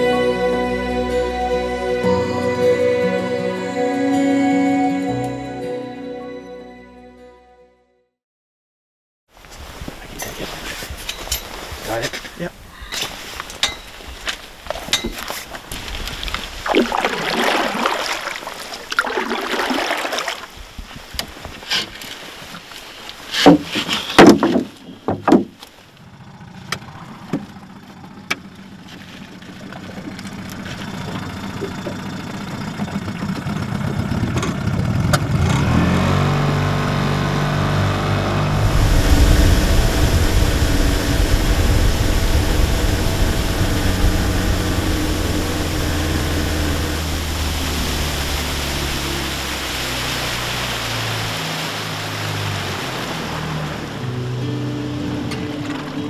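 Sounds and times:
outboard motor running: 15.8s - 20.4s, 25.0s - 56.0s.

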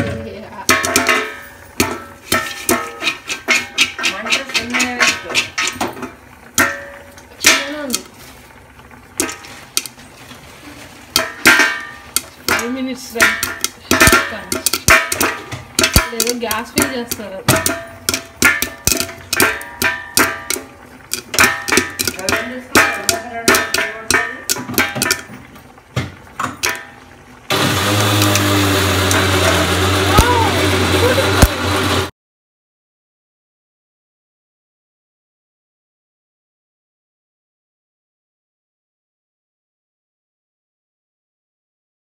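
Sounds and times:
popcorn popping in metal pot: 0.0s - 32.1s
loud mechanical hum: 27.4s - 32.1s.

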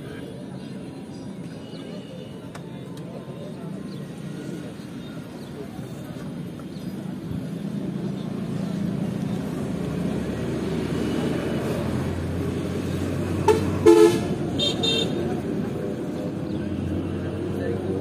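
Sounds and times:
horn tooting: 13.4s - 15.2s.

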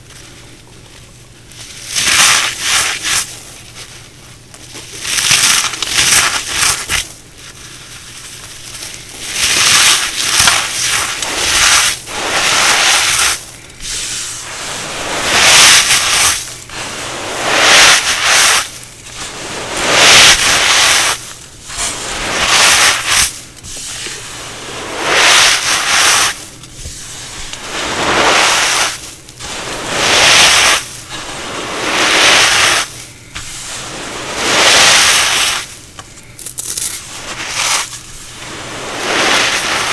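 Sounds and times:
cornstarch pieces crunching: 1.5s - 39.9s.

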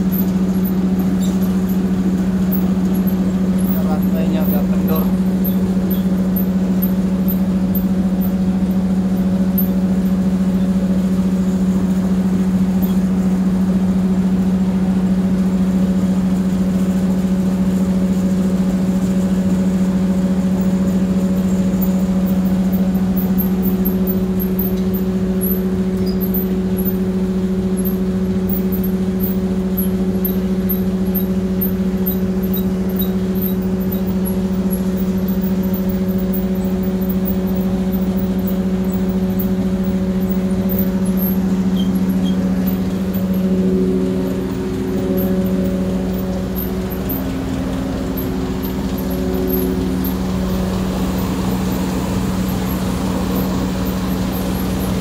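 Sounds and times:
factory machinery hum: 0.0s - 55.0s
higher machine tones: 19.0s - 55.0s.

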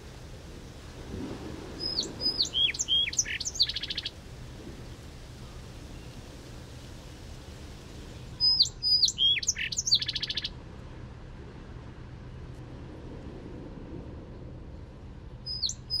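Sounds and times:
songbird singing: 1.7s - 10.6s, 15.3s - 16.0s.

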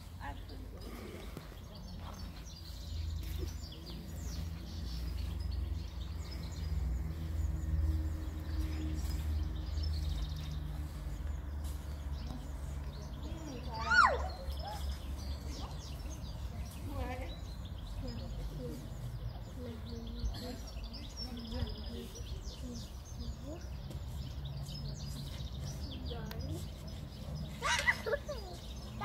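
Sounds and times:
child high-pitched call: 13.7s - 14.4s.

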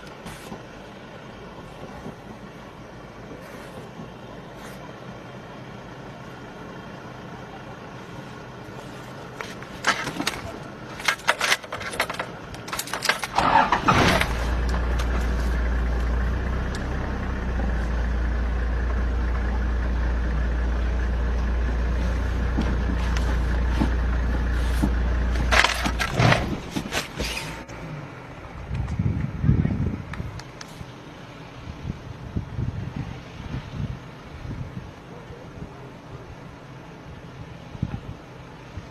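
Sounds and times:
car engine starting and idling: 0.0s - 38.9s
knocks and rustles: 8.8s - 15.6s, 22.4s - 27.7s.

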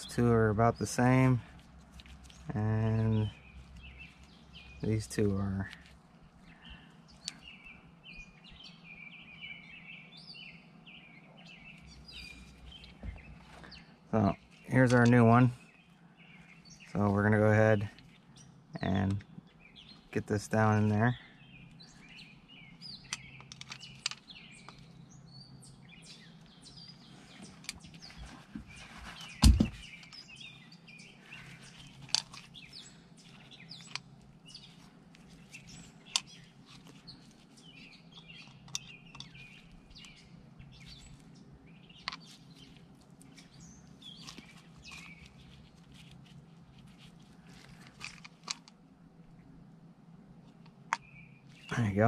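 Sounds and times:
birds chirping: 0.0s - 52.0s
small clicks and knocks from handling: 23.0s - 24.9s, 31.7s - 32.6s, 33.7s - 34.1s, 35.2s - 37.4s, 38.1s - 40.2s, 42.0s - 48.8s
loud thump: 29.4s - 29.8s.

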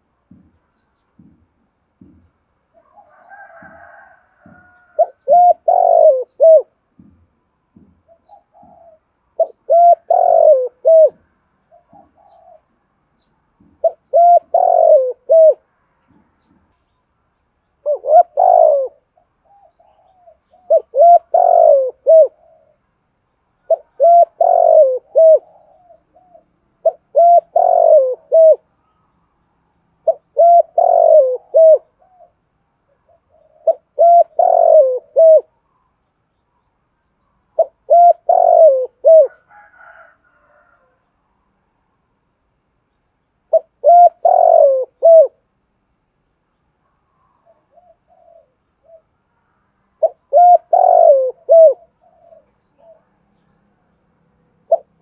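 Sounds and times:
dove cooing: 2.0s - 7.1s, 8.0s - 12.8s, 13.7s - 16.2s, 17.8s - 22.9s, 23.6s - 28.7s, 30.0s - 35.6s, 37.6s - 40.9s, 43.5s - 45.5s, 47.1s - 49.2s, 50.0s - 53.2s, 54.6s - 55.0s.

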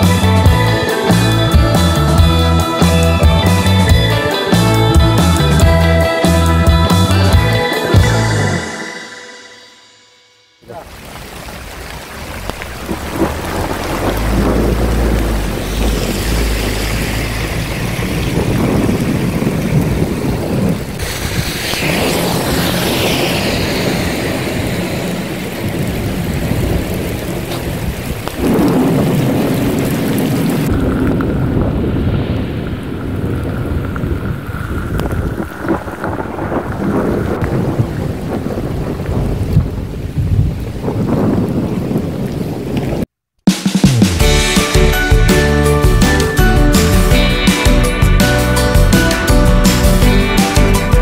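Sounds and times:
heavy rain hissing: 10.6s - 43.1s
thunder rumbling: 11.0s - 43.1s.

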